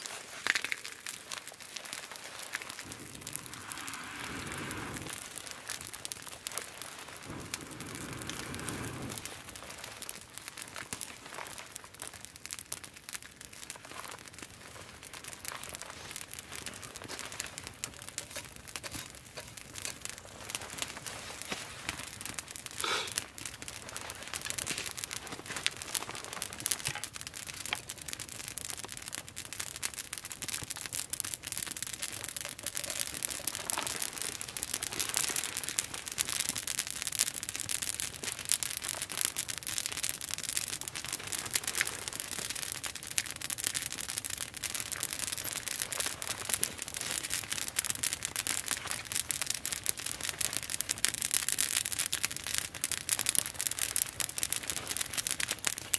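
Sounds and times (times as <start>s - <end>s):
campfire crackling: 0.0s - 55.9s.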